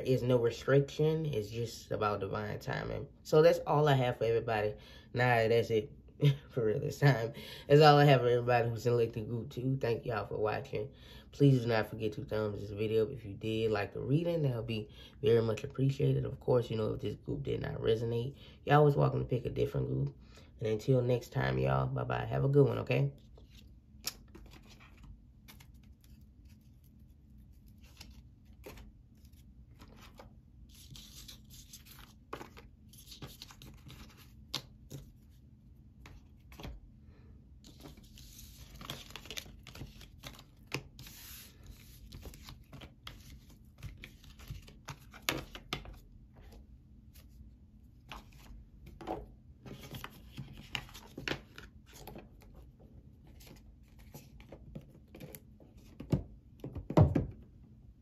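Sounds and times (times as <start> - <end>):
cards rustling and flicking: 23.4 - 35.2, 36.0 - 36.8, 37.6 - 47.4, 48.0 - 52.4.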